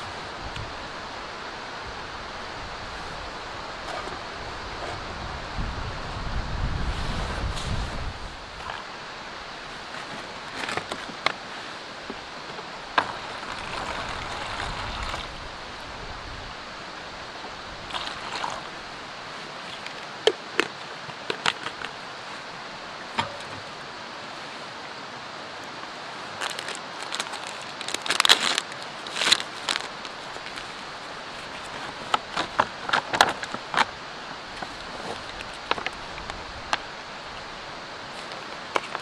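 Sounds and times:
steady background hiss: 0:00.0 - 0:39.0
packaging rustling: 0:26.4 - 0:33.6.

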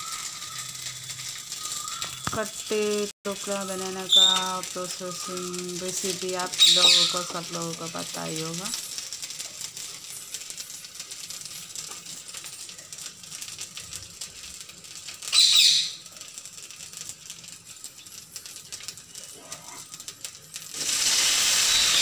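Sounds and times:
spices crackling in hot oil: 0:00.0 - 0:22.0.

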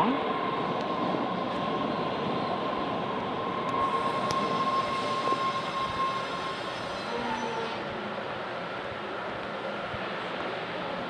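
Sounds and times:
subway train rumbling past: 0:00.0 - 0:11.0
high steady squeal: 0:00.3 - 0:08.1.

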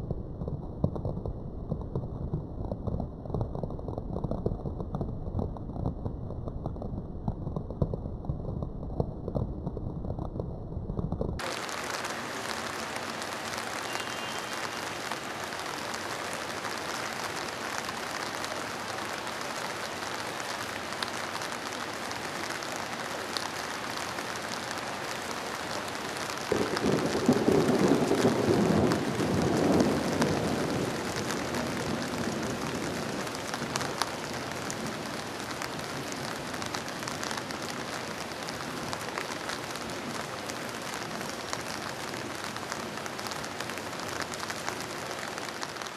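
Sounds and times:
rain hissing: 0:11.2 - 0:45.9
thunder rolling: 0:26.5 - 0:33.8.

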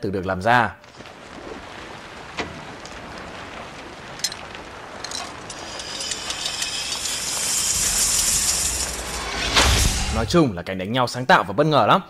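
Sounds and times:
steady rushing hiss: 0:00.9 - 0:10.5.

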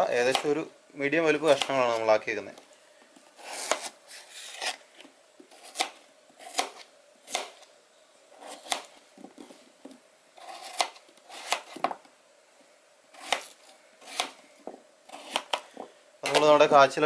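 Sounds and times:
knife cutting yam: 0:01.5 - 0:02.0, 0:03.4 - 0:04.8, 0:05.5 - 0:07.7, 0:08.4 - 0:09.0, 0:10.4 - 0:12.0, 0:13.2 - 0:14.4, 0:15.1 - 0:16.6.

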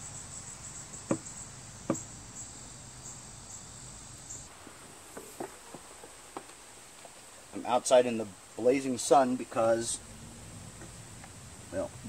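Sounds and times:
insect chirping: 0:00.0 - 0:12.0
sharp knocks: 0:01.0 - 0:02.1.

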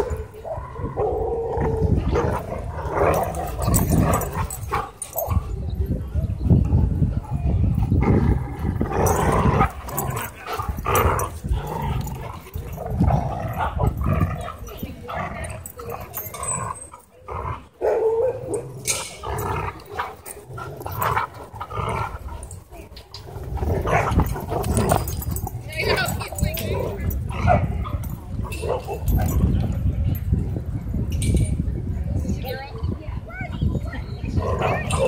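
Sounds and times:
dogs play growling: 0:00.0 - 0:05.5, 0:07.6 - 0:29.4, 0:34.3 - 0:35.0.

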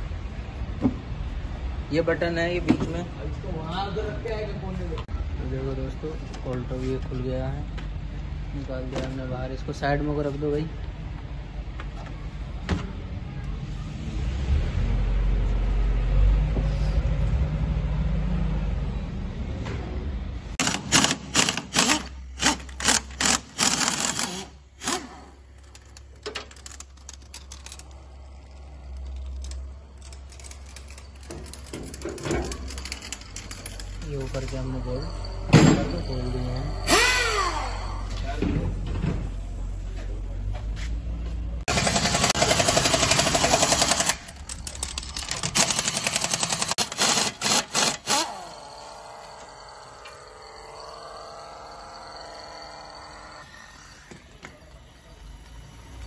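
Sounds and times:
air impact wrench hammering: 0:20.6 - 0:25.4, 0:36.8 - 0:37.8, 0:41.7 - 0:44.4, 0:45.2 - 0:53.5.

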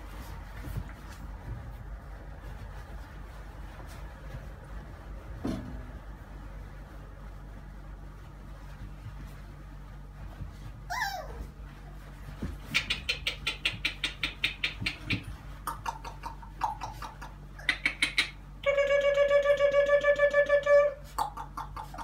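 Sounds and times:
puppies yipping: 0:10.9 - 0:11.5.

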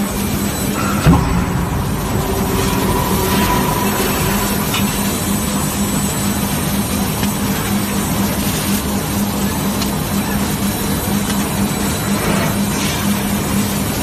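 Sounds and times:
forging press machinery drone: 0:00.5 - 0:06.8.

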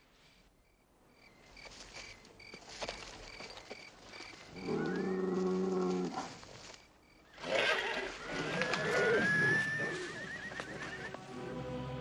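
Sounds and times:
crickets chirping: 0:00.6 - 0:07.4.

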